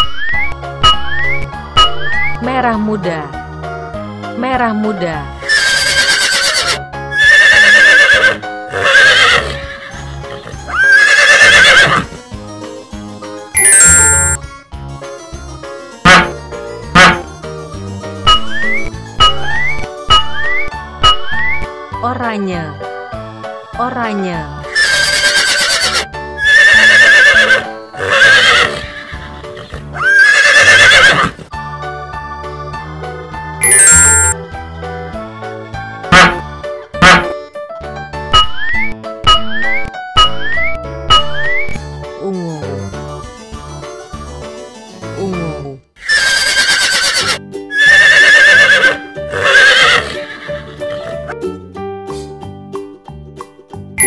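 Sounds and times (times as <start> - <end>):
light background music: 0.0 - 54.0
horse whinnying: 5.4 - 12.2, 24.7 - 31.5, 46.0 - 51.3.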